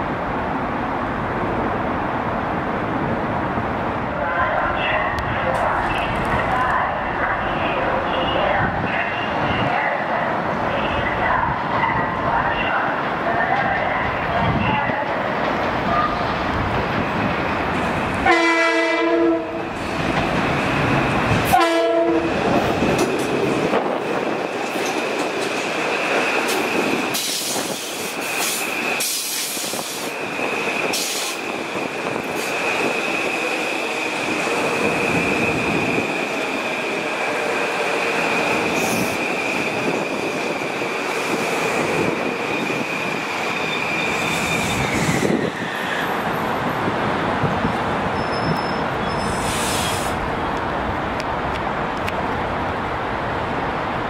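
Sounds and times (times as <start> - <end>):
train horn: 18.2 - 19.6, 21.5 - 22.3
train wheels squealing: 42.4 - 46.3, 48.2 - 50.2.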